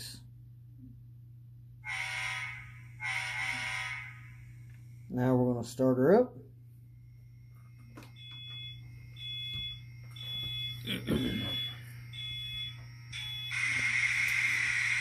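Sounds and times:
high electronic beeps: 8.2 - 13.8.

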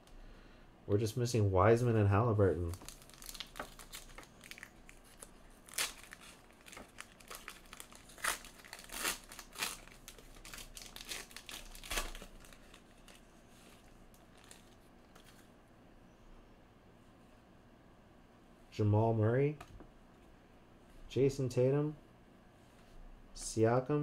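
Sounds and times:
foil wrapper tearing and crinkling: 2.6 - 13.2, 14.1 - 14.8.

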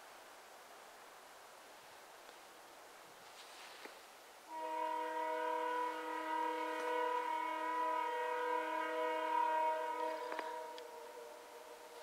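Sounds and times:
locomotive air horn chord: 4.5 - 12.0.

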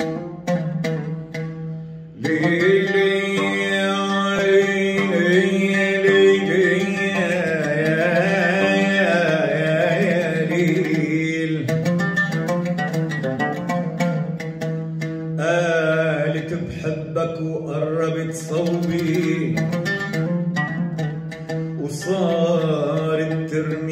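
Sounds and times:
oud plucked notes: 0.0 - 23.9
man singing: 2.2 - 12.5, 15.4 - 20.4, 21.8 - 23.9.

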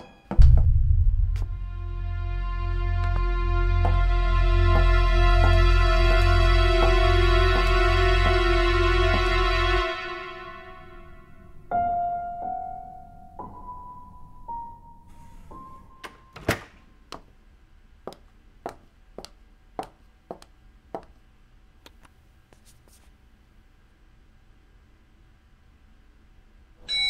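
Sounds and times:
slow piano notes: 0.0 - 16.4.

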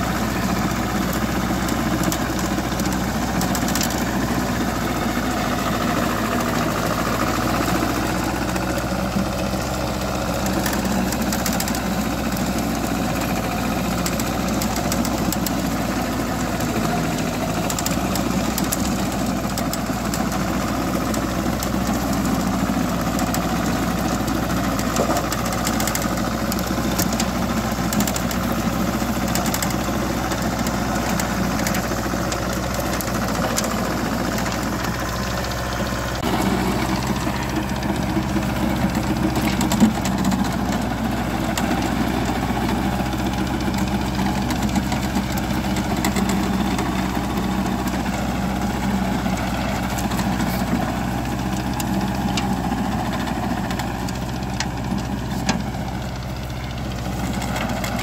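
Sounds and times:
tiller clicking and clatter: 0.0 - 58.0
tractor engine running: 0.0 - 58.0.

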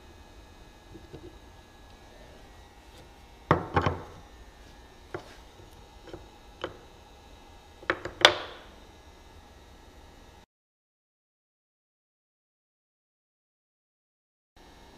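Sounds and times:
wooden tools knocking on workbench: 3.5 - 4.2, 6.1 - 6.8, 7.8 - 8.7.

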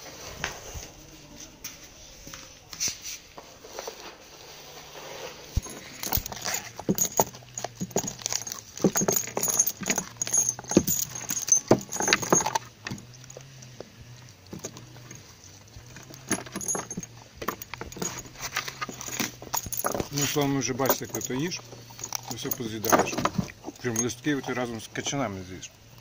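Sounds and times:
metal chain clinking on boards: 5.5 - 26.0.

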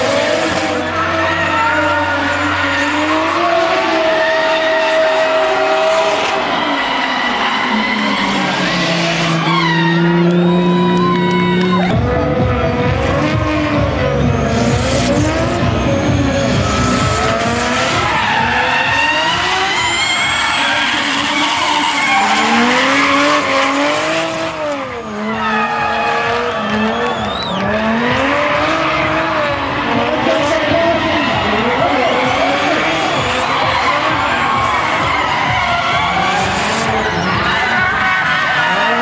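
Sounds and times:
car engines revving: 0.0 - 39.0
tyres squealing: 14.3 - 39.0.

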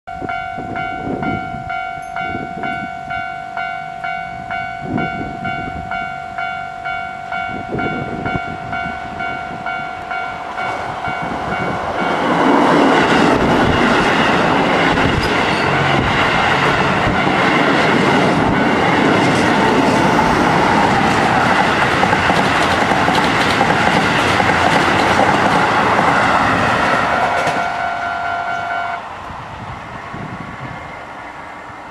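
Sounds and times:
level-crossing bell ringing: 0.1 - 12.3, 27.6 - 29.0
train wheels clattering over rails: 10.6 - 27.8.

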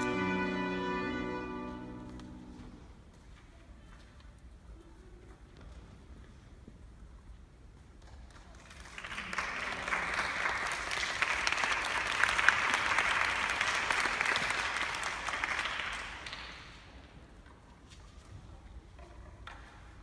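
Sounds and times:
audience applauding: 8.6 - 16.8.

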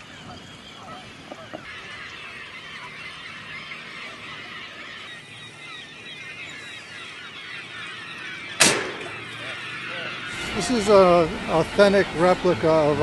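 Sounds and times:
flock of birds calling: 0.0 - 13.0.

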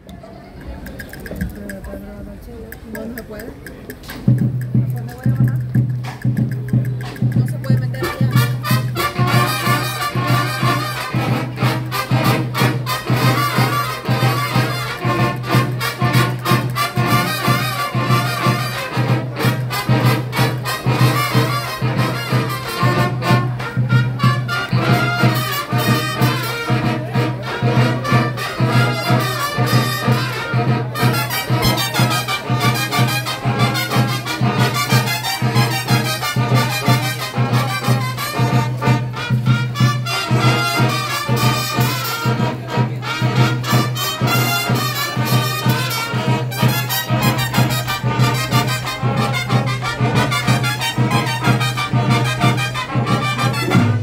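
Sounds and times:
steady drum beat: 1.0 - 54.0
marching band brass: 4.1 - 54.0.

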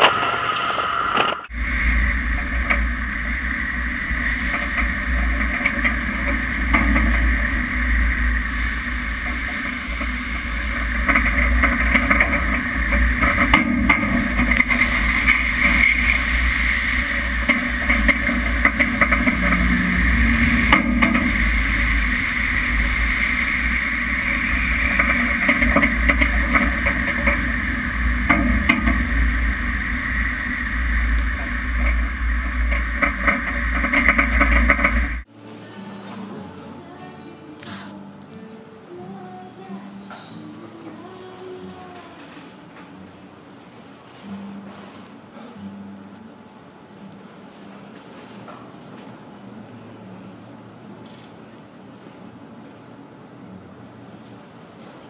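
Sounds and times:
rough sea breaking around bow: 0.0 - 35.3
wind rumble on microphone: 1.5 - 35.2.

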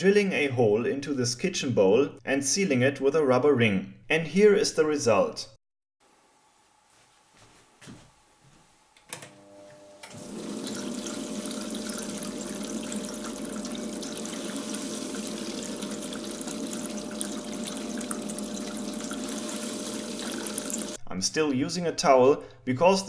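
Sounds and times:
pump motor clicking on: 9.0 - 21.0
pump motor humming: 9.4 - 21.0
water stream splashing into bowl: 10.1 - 21.0.

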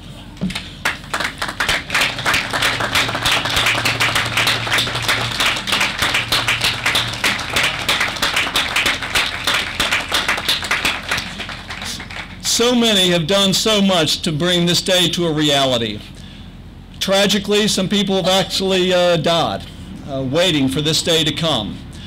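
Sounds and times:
audience applauding: 0.5 - 12.5.

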